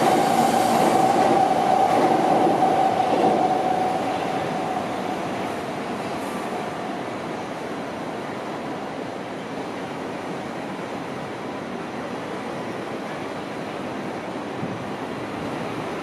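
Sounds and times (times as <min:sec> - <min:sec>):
train passing: 0:00.0 - 0:11.7.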